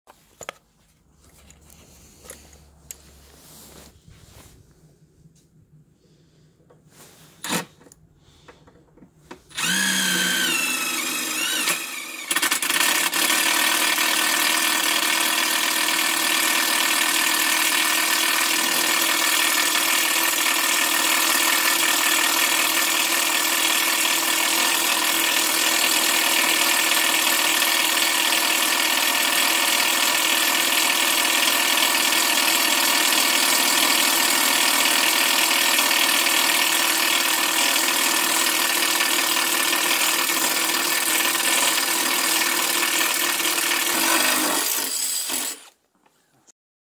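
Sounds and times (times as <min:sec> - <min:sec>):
impact driver drilling into metal: 0:07.4 - 0:07.7, 0:09.5 - 0:45.8.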